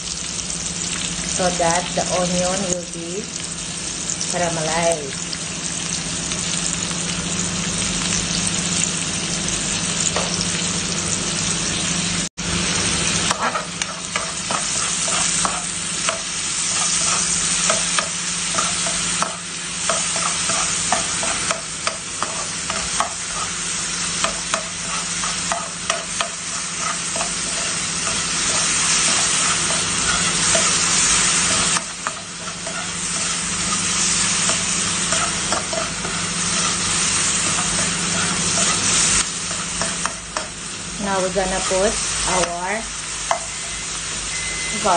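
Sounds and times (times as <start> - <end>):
onions sizzling in oil: 0.0 - 44.9
spatula scraping a pan: 13.2 - 40.6.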